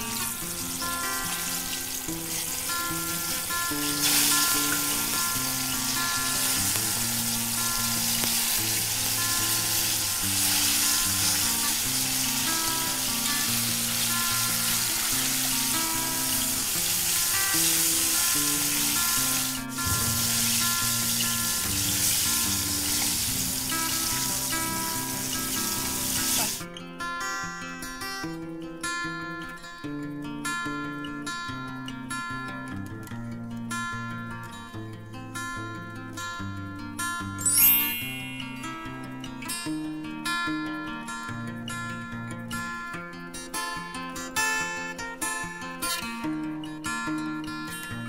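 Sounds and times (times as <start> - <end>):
soft acoustic guitar tune: 0.0 - 48.0
chicken deep-frying in oil: 0.1 - 26.6.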